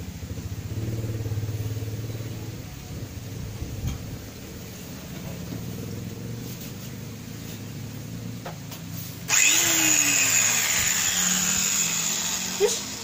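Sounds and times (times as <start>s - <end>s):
angle grinder grinding on steel: 9.3s - 13.0s.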